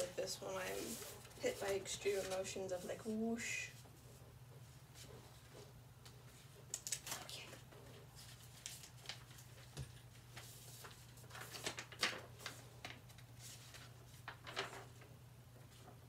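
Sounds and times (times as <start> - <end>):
paper rustling: 0.0 - 3.0, 8.0 - 16.0.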